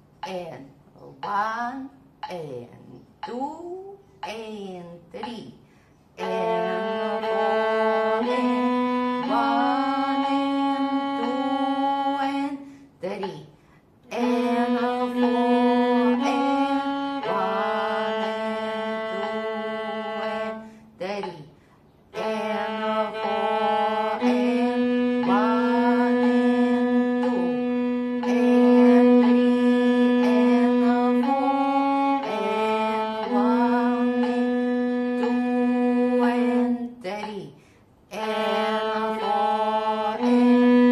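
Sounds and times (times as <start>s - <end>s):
viola bowing sustained notes: 6.2s - 12.6s, 14.1s - 21.0s, 22.1s - 36.9s, 38.2s - 40.9s.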